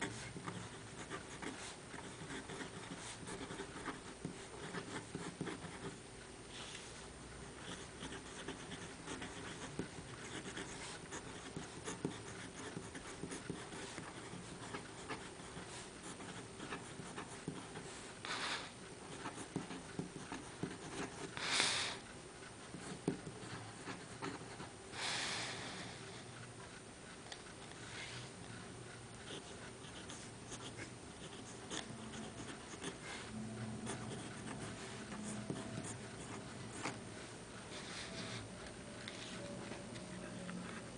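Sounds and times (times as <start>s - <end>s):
pen nib scratching paper: 0.0s - 6.0s, 7.5s - 18.1s, 19.1s - 21.4s, 22.6s - 24.7s, 29.2s - 37.0s.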